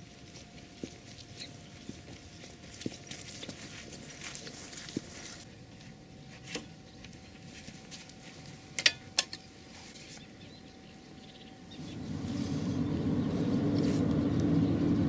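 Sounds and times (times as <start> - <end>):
low rumble: 11.8 - 15.0.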